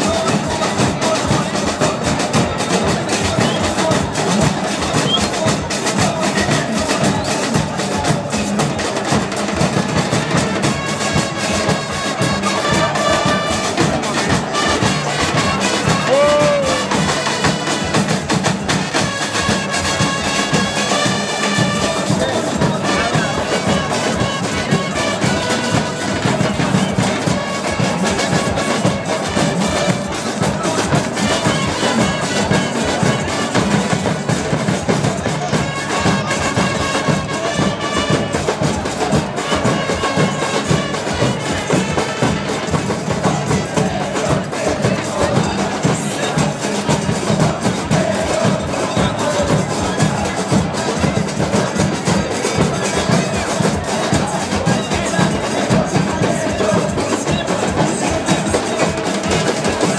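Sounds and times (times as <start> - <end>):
bass drums beating: 0.0 - 59.9
crowd voices: 0.0 - 59.9
trumpets playing tune: 9.0 - 34.0, 35.3 - 46.4.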